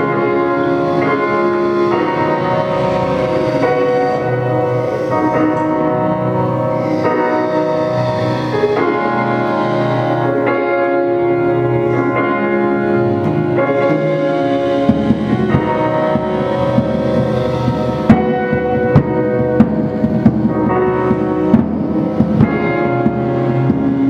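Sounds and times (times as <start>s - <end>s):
electronic keyboard chords: 0.0s - 24.0s
low repeating pulse: 0.0s - 24.0s.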